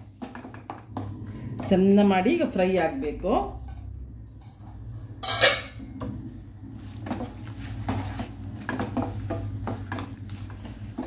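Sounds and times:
wooden spatula scraping frying pan: 0.0 - 2.1, 6.8 - 11.0
spatula knocking pan: 7.0 - 11.0.

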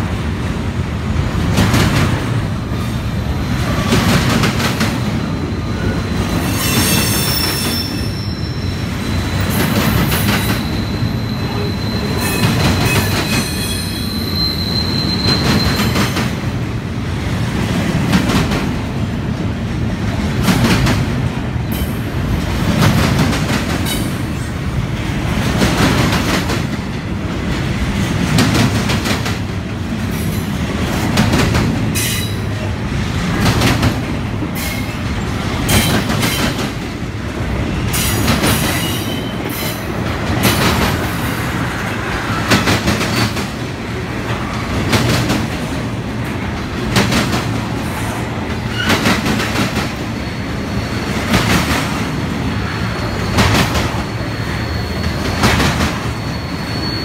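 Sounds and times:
train wheels rumbling on rail: 0.0 - 57.0
high wheel squeal: 5.1 - 16.2, 50.1 - 51.4, 52.5 - 57.0.

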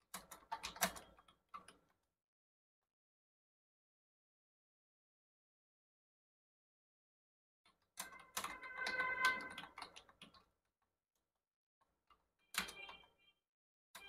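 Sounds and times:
typing on computer keyboard: 0.0 - 2.1, 7.7 - 10.6, 12.1 - 13.4.

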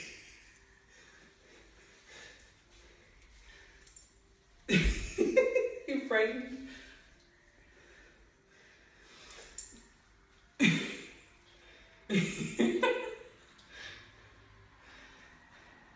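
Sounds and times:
woman breathing hard: 0.0 - 4.2, 6.7 - 9.8, 13.6 - 15.9
woman laughing: 4.7 - 6.1, 12.1 - 13.3.

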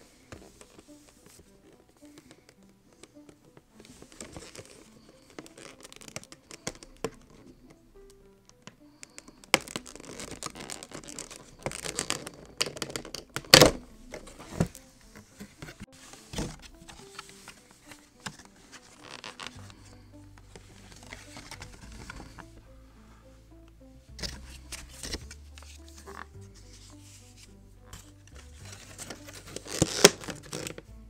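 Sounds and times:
plastic shell cracking: 1.7 - 7.5, 8.4 - 14.8, 17.9 - 19.8, 28.7 - 30.8
plastic packaging crinkling: 4.2 - 7.2, 9.0 - 14.7, 17.9 - 19.9, 28.6 - 30.8.

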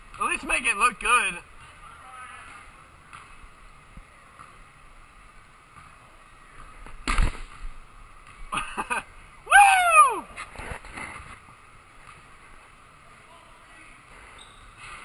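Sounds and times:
ball thumping in a gym: 2.4 - 8.5
short falling shout: 9.5 - 10.4.

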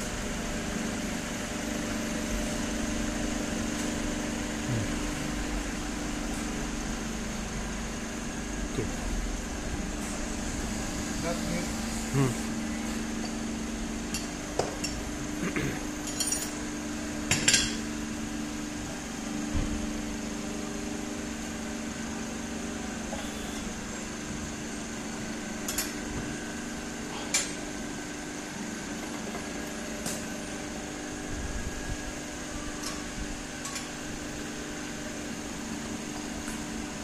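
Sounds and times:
steady low hum: 0.0 - 28.0.

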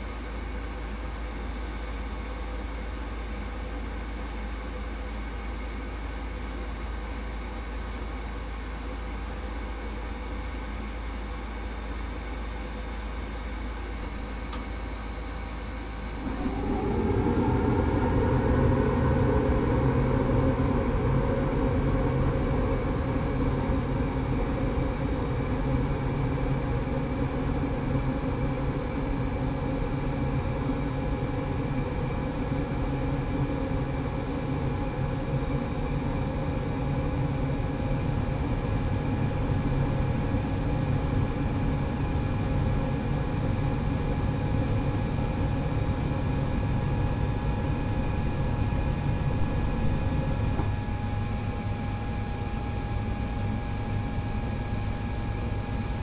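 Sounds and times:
faint steady humming tones: 0.0 - 56.0
furnace rumbling: 46.4 - 50.7.

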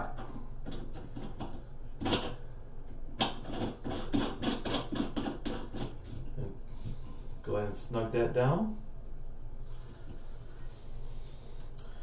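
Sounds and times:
pipe cap threads clicking and scraping: 0.0 - 7.1.

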